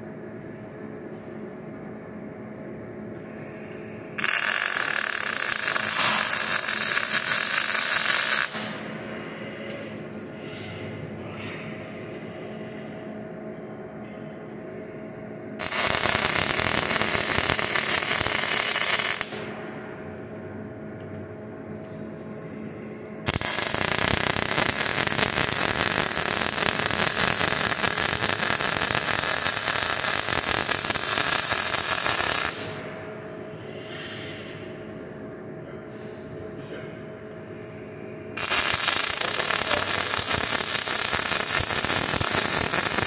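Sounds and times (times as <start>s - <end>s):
machine hum: 0.0s - 43.0s
welding arc crackling hiss: 3.3s - 8.8s, 15.5s - 19.6s, 23.2s - 32.9s, 38.3s - 43.0s.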